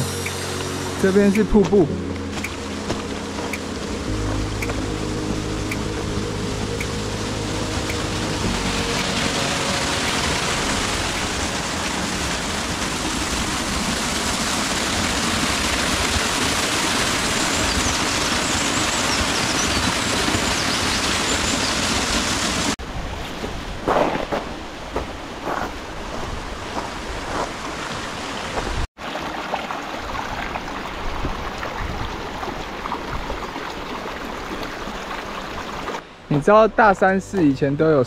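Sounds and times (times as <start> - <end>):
background music: 0.0 - 13.6
waterfall rushing: 0.0 - 22.8.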